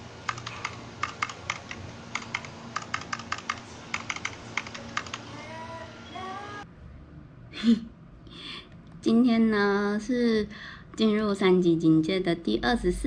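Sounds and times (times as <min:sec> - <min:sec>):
low steady hum: 0:00.0 - 0:13.0
keyboard key clicks: 0:00.3 - 0:05.2.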